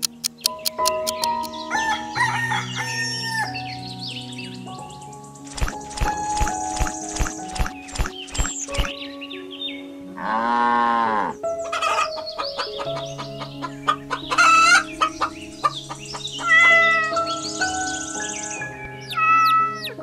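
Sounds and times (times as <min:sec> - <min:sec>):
background music: 0:00.0 - 0:20.0
rooster crowing: 0:01.7 - 0:03.6, 0:13.9 - 0:15.3
hens clucking: 0:11.6 - 0:17.2.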